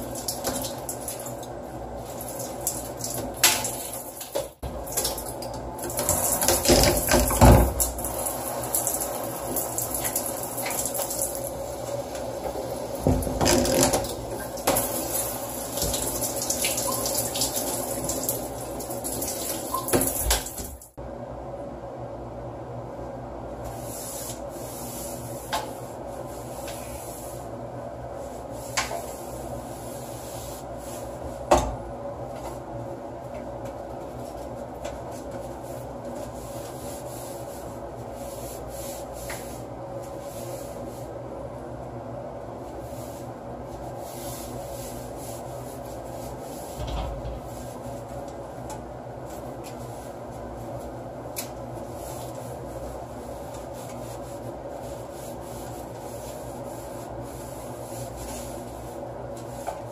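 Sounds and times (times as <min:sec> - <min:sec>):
cloth scrubbing hard surface: 0:23.7 - 0:27.5, 0:28.1 - 0:31.4, 0:42.6 - 0:48.2, 0:51.8 - 0:59.9.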